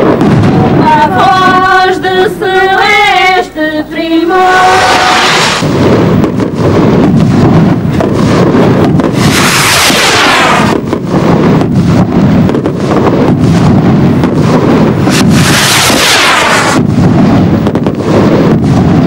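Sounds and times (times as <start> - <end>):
rocket whoosh: 0.0 - 3.5, 4.3 - 19.0
rocket rushing hiss: 4.3 - 19.0.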